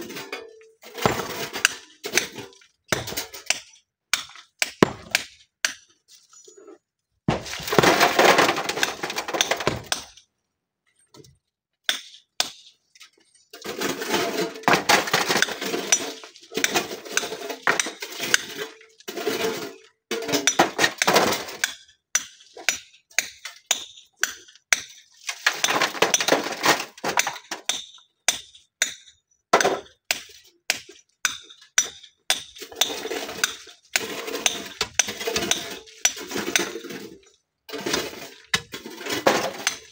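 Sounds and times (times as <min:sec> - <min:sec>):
hammer striking stone: 0:04.2 - 0:05.8
stones clattering: 0:04.8 - 0:05.2, 0:07.3 - 0:10.1.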